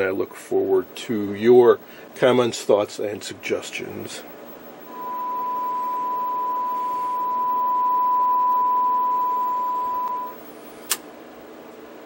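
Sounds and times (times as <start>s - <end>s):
steady test tone: 4.8s - 10.4s.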